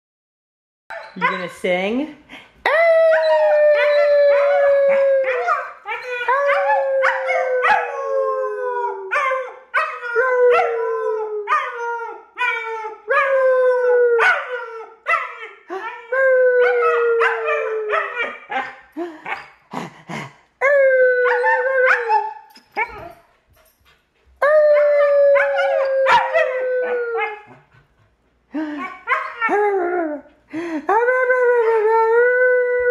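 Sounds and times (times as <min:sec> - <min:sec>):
puppy howling: 0:02.7 - 0:14.9, 0:16.1 - 0:18.7, 0:24.4 - 0:27.6.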